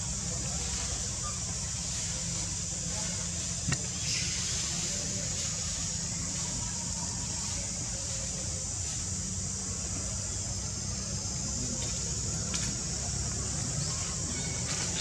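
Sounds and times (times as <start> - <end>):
high-pitched insect drone: 0.0 - 15.0.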